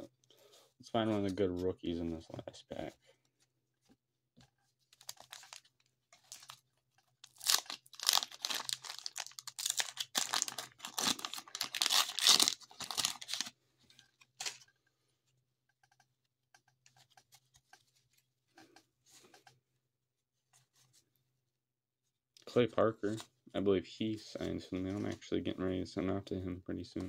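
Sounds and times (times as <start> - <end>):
paper wrapper tearing and crinkling: 5.0 - 6.6, 7.2 - 13.5.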